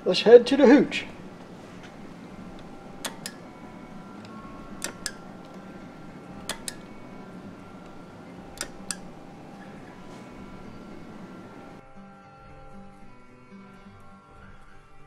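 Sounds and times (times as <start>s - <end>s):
low steady hum: 0.0s - 11.8s
relay and button clicks: 1.0s - 11.8s.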